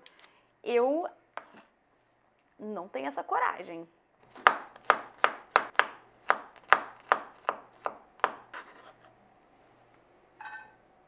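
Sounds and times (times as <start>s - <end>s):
knife chopping on wooden board: 4.3s - 8.8s.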